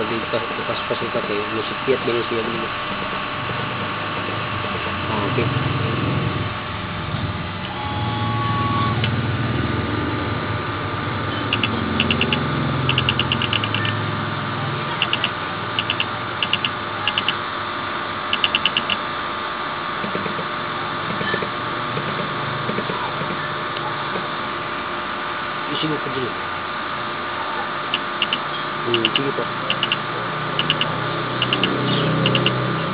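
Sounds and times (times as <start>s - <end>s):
machine hum: 0.0s - 32.9s
quick high-pitched ticks: 11.5s - 13.9s, 15.0s - 17.4s, 18.4s - 19.0s, 29.0s - 30.0s, 30.6s - 32.6s.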